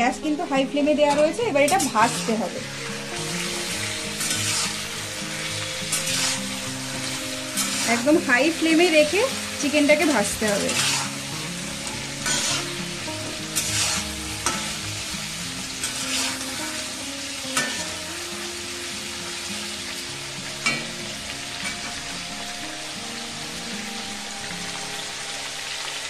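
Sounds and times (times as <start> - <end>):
chicken sizzling in hot oil: 0.3 - 26.0
spoon scraping and knocking pan: 11.8 - 12.7.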